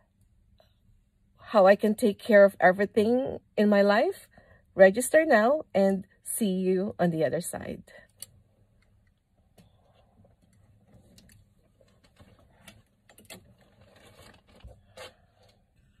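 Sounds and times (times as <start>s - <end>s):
clothes rustling: 9.8s - 16.0s.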